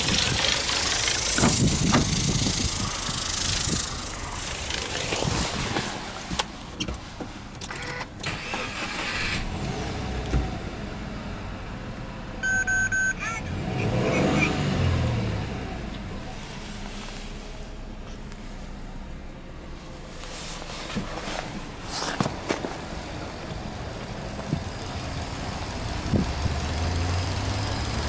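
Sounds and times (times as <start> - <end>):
car engine cranking and idling: 0.0 - 28.0
warning chime beeping: 12.4 - 13.7.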